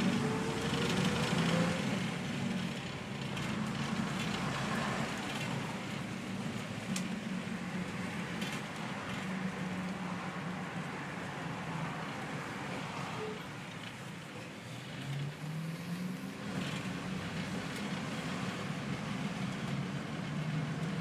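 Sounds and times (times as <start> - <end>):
bus diesel engine: 0.0 - 21.0.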